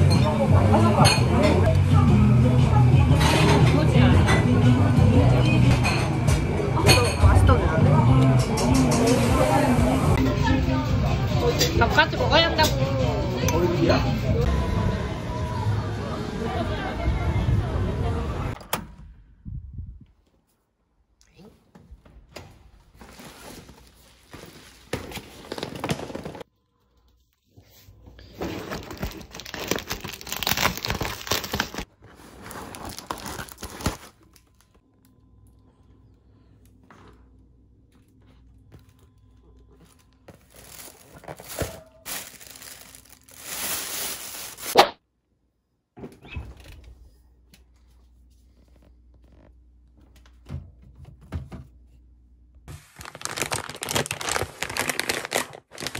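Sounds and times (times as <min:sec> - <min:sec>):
paper and plastic rustling: 0:22.9 - 0:34.8, 0:38.1 - 0:44.8, 0:52.7 - 0:55.9.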